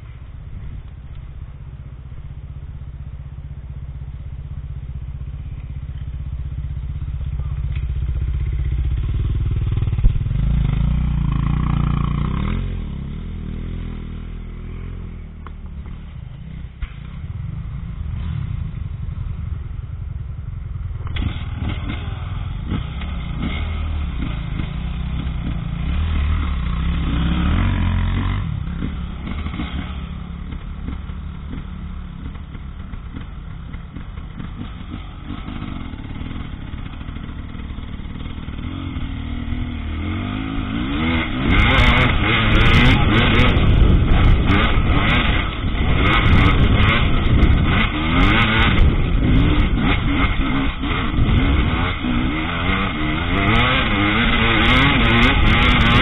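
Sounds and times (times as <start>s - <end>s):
motorcycle engine: 0.0s - 56.0s
motorcycle rattles and knocks: 5.4s - 10.8s, 28.0s - 39.5s, 40.4s - 56.0s.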